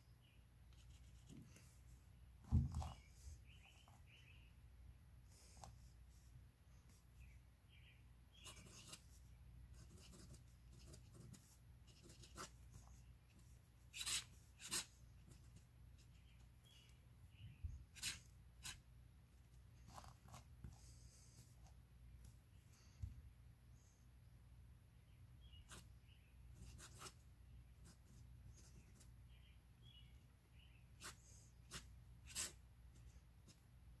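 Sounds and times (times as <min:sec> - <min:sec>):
pen nib scratching paper: 0:08.4 - 0:09.0, 0:09.7 - 0:16.2, 0:17.9 - 0:18.8, 0:31.0 - 0:32.6.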